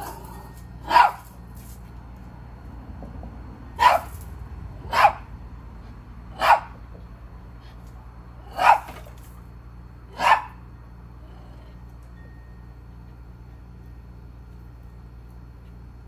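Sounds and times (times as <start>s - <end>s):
small dog barking: 0.8s - 1.3s, 3.8s - 4.2s, 4.9s - 5.3s, 6.4s - 6.8s, 8.5s - 9.0s, 10.2s - 10.6s.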